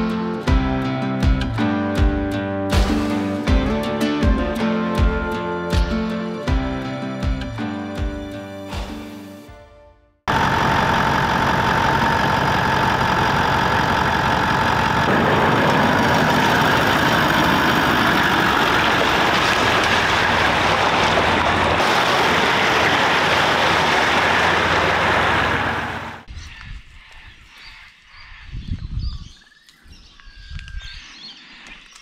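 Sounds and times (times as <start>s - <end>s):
steady whine: 10.3s - 19.4s
vehicle engine driving: 10.3s - 26.3s.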